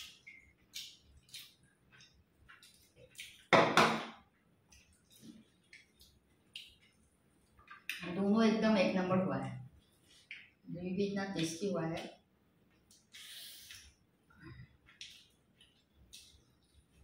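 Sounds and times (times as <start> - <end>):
people eating with hands: 0.0 - 3.6, 4.2 - 8.3, 9.4 - 10.7, 11.3 - 17.0.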